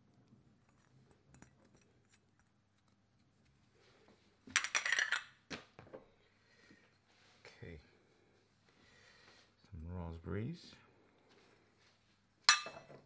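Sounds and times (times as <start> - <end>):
crockery clattering: 12.5 - 13.0
crockery clinking: 12.5 - 13.0.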